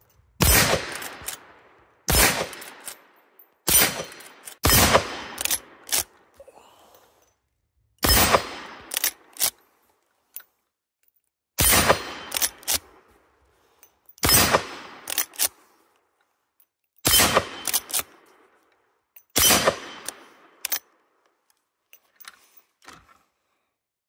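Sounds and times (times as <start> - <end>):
rifle lever metallic clicks: 0.0 - 1.5, 2.2 - 4.7, 5.3 - 6.3, 8.0 - 9.7, 11.1 - 13.0, 13.8 - 15.7, 17.0 - 20.9
rifle shots: 0.4 - 2.9, 3.7 - 6.1, 8.0 - 9.3, 11.6 - 12.9, 14.2 - 15.4, 17.1 - 18.1, 19.4 - 20.3.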